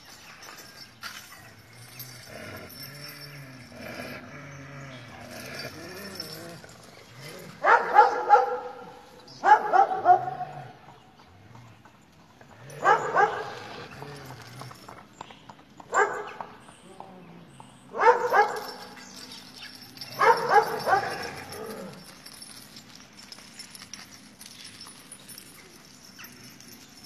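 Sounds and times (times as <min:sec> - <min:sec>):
dogs barking: 0:07.3 - 0:10.8, 0:12.7 - 0:13.7, 0:15.9 - 0:16.5, 0:17.9 - 0:19.0, 0:19.8 - 0:22.1.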